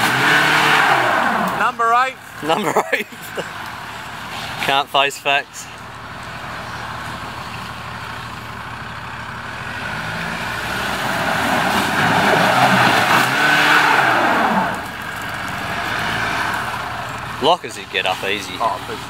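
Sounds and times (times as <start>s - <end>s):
engine revving hard: 0.0s - 2.7s, 9.4s - 19.0s.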